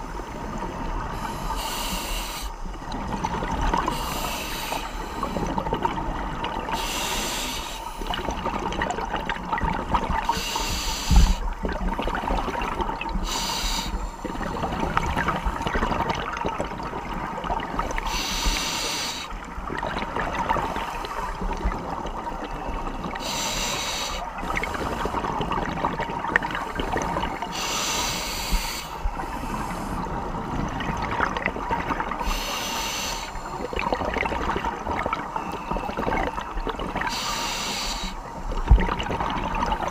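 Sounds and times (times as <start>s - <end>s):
underwater crackle: 0.1s - 39.9s
regulator breath hissing: 1.2s - 2.5s, 3.9s - 5.4s, 6.8s - 8.0s, 10.3s - 11.4s, 13.2s - 14.3s, 18.1s - 19.3s, 23.2s - 25.1s, 27.5s - 30.0s, 32.2s - 33.7s, 37.1s - 38.3s.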